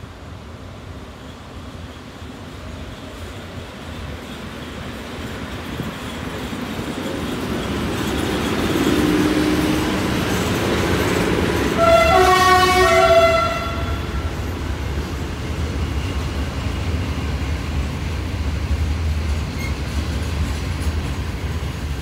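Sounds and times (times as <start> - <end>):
train wheels rumbling on rails: 0.0 - 22.0
two-tone train horn: 11.6 - 14.4.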